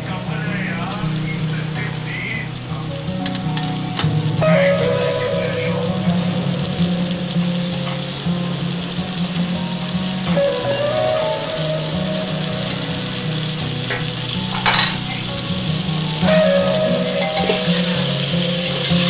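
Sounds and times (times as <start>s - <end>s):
meat sizzling in hot oil: 0.1s - 19.0s
sharp metal clink: 14.6s - 15.0s.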